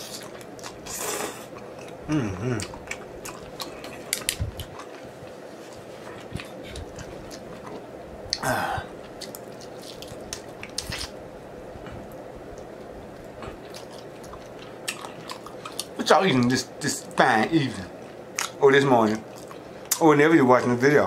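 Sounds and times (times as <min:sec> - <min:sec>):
wet chewing and biting: 0:00.0 - 0:11.2, 0:11.9 - 0:16.0.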